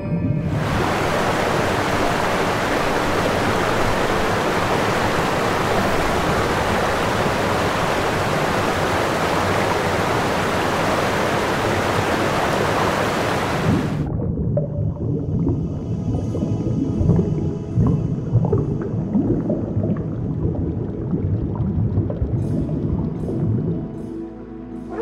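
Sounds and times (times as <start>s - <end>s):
loud rushing noise: 0.5s - 14.1s.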